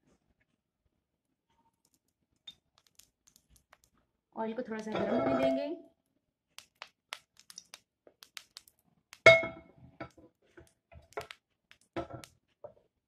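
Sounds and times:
small kitchen ticks: 4.6s - 4.9s.

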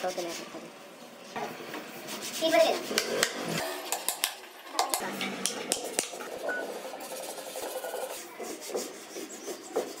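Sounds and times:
rubbing and scraping on wood: 5.8s - 10.0s.

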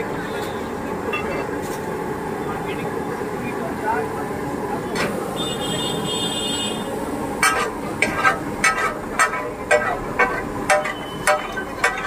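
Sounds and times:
metal spatula clanking on griddle: 7.4s - 12.0s.

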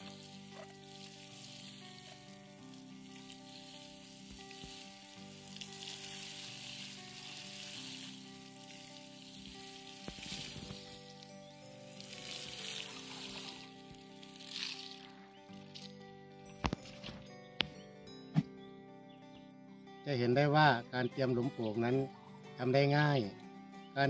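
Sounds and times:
water showering onto soil: 0.0s - 16.0s
soft background music: 0.0s - 24.0s.

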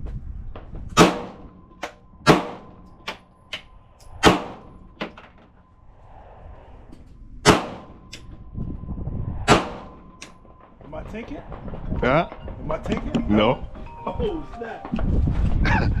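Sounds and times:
gunshots: 1.0s - 1.5s, 2.2s - 2.8s, 4.2s - 4.8s, 7.4s - 8.0s, 9.4s - 12.9s
fainter gunshots: 7.4s - 8.0s, 9.5s - 10.0s.

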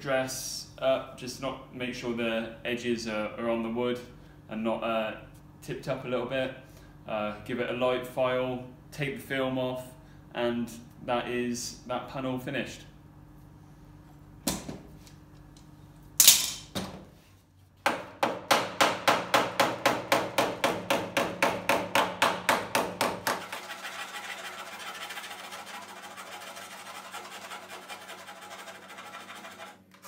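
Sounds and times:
hand file scraping metal: 23.3s - 29.8s.

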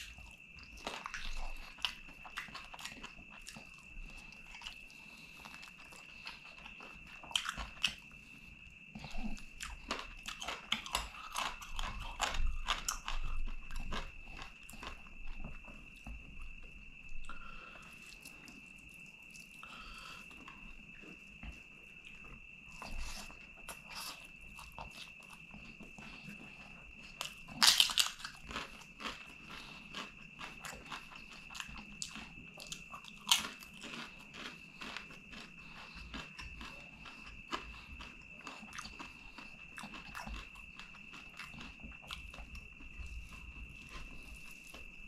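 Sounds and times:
chewing and mixing food by hand: 0.0s - 45.0s
crisp papadam crunching: 27.0s - 42.5s.

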